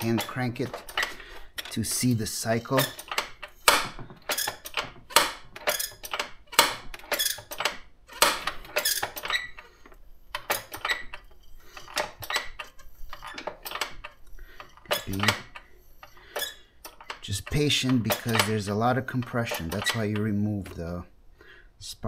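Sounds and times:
metallic squeaks and clacks of cranking: 0.0s - 20.9s.

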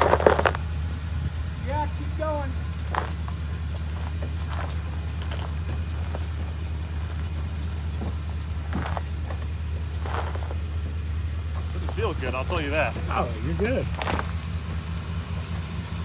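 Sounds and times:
tyres crunching on loose rock: 0.0s - 0.7s, 2.8s - 11.0s
engine running at low speed: 0.0s - 16.0s.

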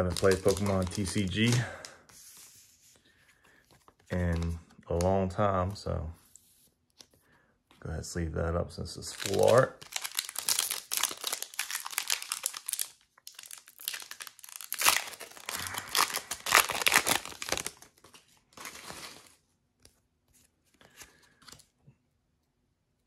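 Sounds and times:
plastic wrapping crinkling: 0.0s - 2.0s, 9.0s - 19.4s.

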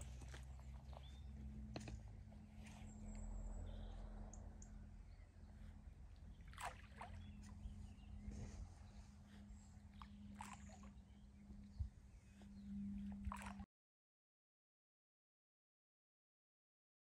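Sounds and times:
wind rumble on microphone: 0.0s - 13.6s
steady low hum: 0.0s - 13.7s.

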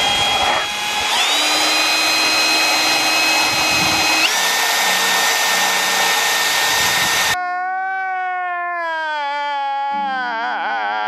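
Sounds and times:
grinder high whine: 0.0s - 7.4s.

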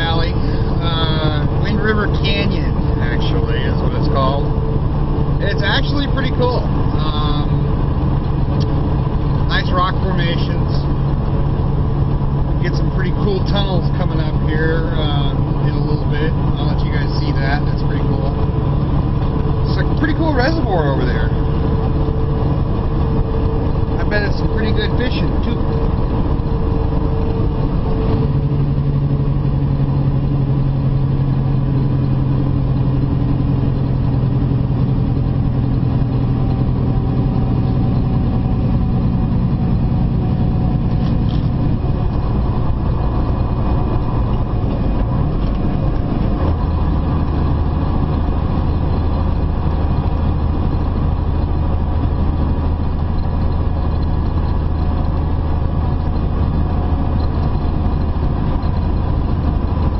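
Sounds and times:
diesel truck engine hum: 0.0s - 59.9s
road noise: 0.0s - 59.9s.

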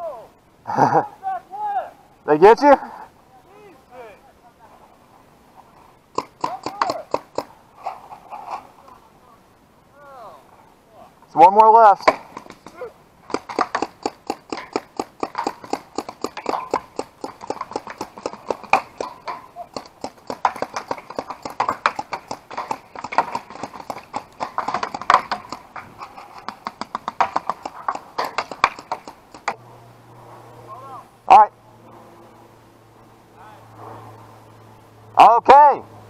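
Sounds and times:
paintball markers firing: 6.2s - 7.5s, 12.0s - 29.6s.

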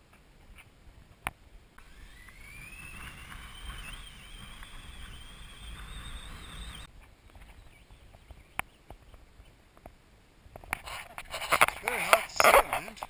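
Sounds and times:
rope hissing through descender: 1.8s - 6.9s.

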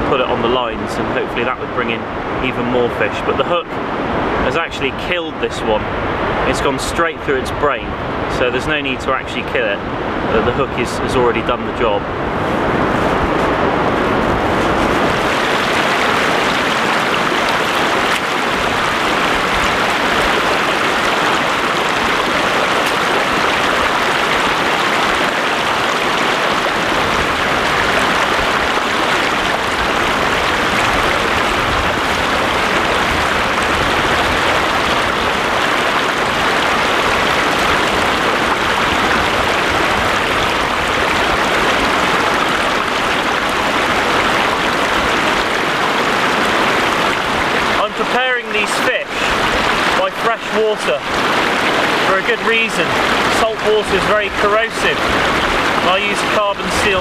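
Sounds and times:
water running over rocks: 14.2s - 57.0s.

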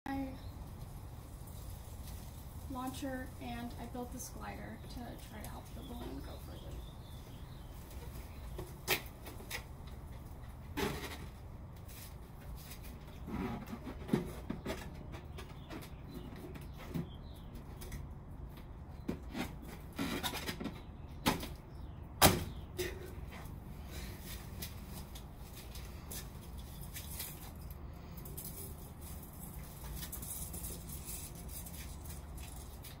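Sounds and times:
rustling and clicking handling: 24.2s - 33.0s.

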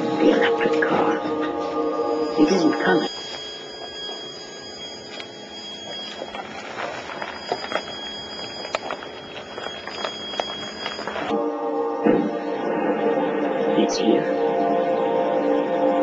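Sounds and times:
electric motor whine: 0.0s - 11.4s.

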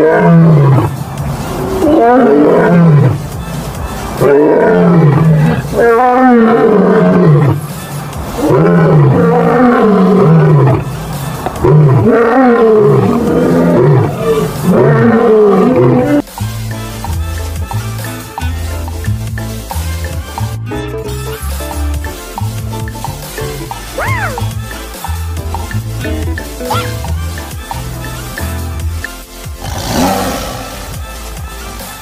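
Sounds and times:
lion roaring: 0.0s - 0.9s, 1.5s - 3.2s, 4.2s - 7.6s, 8.4s - 10.9s, 11.6s - 16.2s, 29.6s - 30.9s
music with steady beat: 2.8s - 4.3s, 7.2s - 9.4s, 10.2s - 12.1s, 16.2s - 32.0s.

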